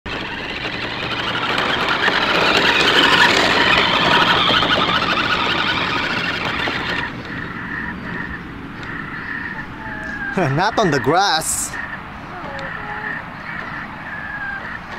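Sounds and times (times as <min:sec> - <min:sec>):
toy car electric motor: 0:00.1 - 0:07.2
wheels rolling over dirt: 0:00.1 - 0:07.5.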